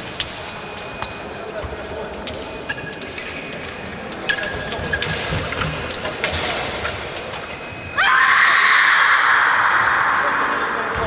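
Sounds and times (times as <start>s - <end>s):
shoes squeaking on floor: 0.4s - 5.9s
taps of steps and blades: 4.3s - 6.9s.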